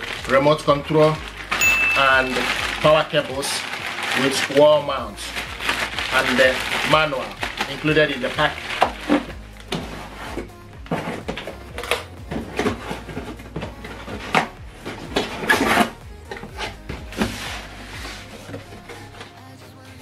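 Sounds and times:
cardboard boxes scraping: 5.2 - 19.4
cardboard boxes knocking and rustling: 7.4 - 19.2.

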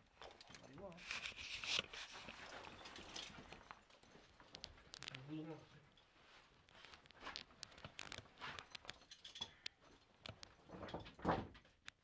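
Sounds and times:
harness gear clinking: 2.0 - 5.0, 7.2 - 10.8.

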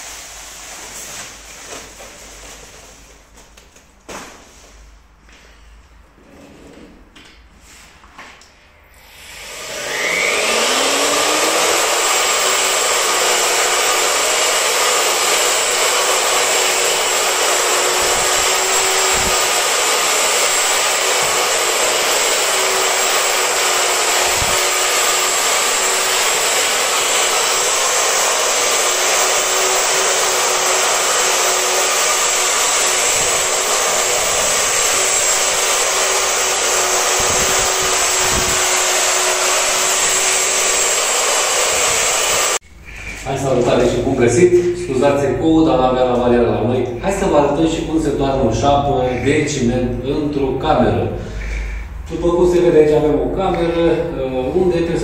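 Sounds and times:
electric motor whine: 9.0 - 42.6.

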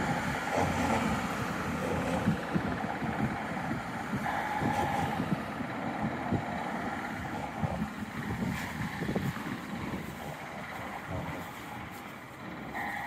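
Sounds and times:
traffic hum: 0.0 - 13.0
wind rumble on microphone: 0.0 - 13.0.

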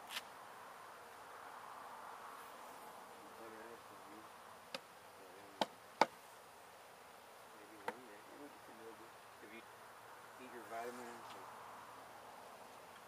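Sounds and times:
sharp knocks: 5.6 - 6.2.

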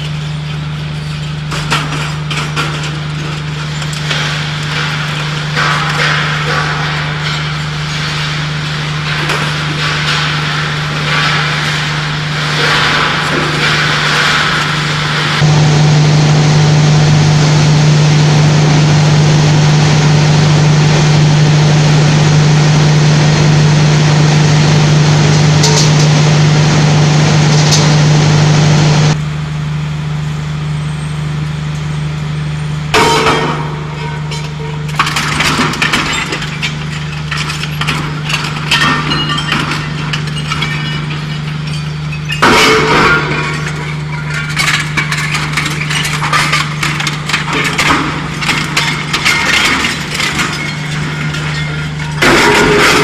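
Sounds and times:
metal shredder cracking and clinking: 0.0 - 15.6, 25.2 - 26.6, 33.0 - 53.0
heavy machinery humming: 0.0 - 53.0.

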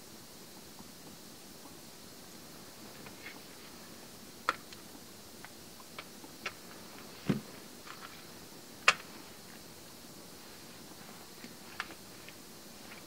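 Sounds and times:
dull thump: 7.2 - 7.5.

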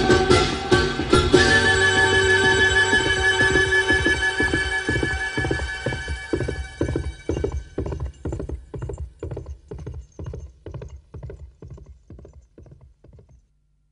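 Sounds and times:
music: 0.0 - 8.0
horse hooves galloping: 1.0 - 13.5.

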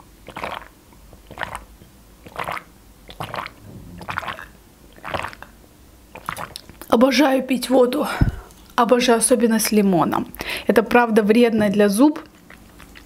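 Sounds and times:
person gulping water: 0.0 - 6.9.

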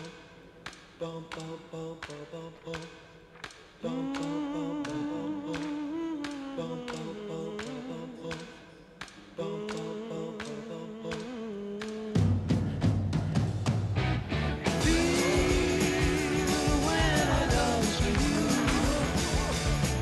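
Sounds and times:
person singing long notes: 3.8 - 8.5, 9.4 - 12.4, 14.7 - 20.0
steady ticking pulse: 14.7 - 20.0.

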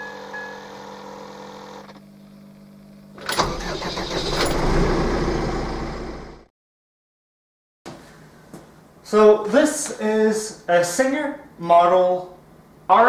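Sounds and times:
tractor diesel engine running: 3.3 - 6.4.

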